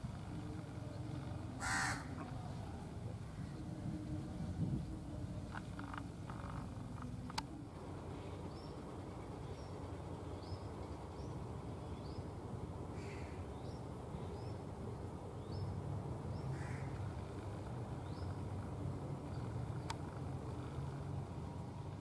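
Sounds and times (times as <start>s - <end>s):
harsh crow-like calls: 1.6s - 2.3s, 12.9s - 13.4s, 16.5s - 17.1s.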